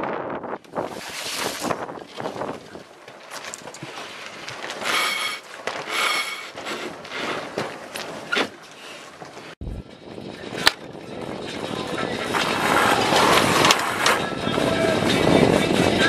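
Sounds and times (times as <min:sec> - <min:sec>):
wind buffeting microphone: 0:00.0 - 0:05.0, 0:09.6 - 0:16.0
sail flapping: 0:00.0 - 0:16.0.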